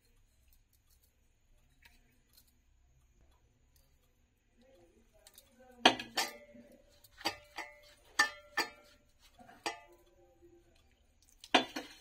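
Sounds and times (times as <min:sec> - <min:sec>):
metallic clinks on steel bowl: 0:05.2 - 0:10.2.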